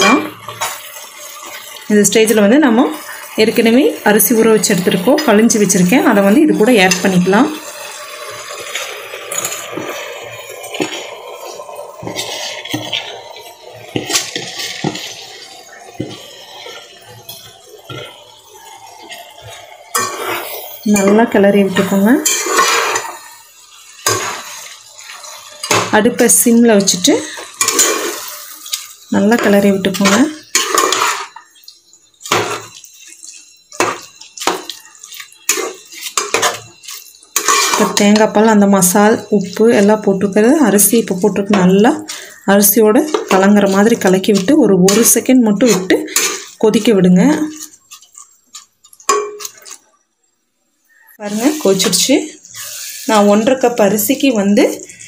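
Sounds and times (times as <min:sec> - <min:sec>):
spoon stirring rice in pot: 0:05.6 - 0:49.9
rice sliding into a pot: 0:08.2 - 0:16.3, 0:51.3 - 0:53.2
tub and spatula clinking on pot: 0:33.7 - 0:38.5.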